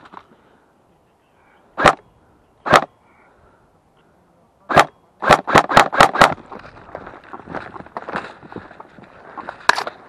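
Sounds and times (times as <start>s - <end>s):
airsoft rifle shots: 1.8s - 2.0s, 2.6s - 2.9s, 4.7s - 6.4s
footsteps crunching through scrub: 6.4s - 10.0s.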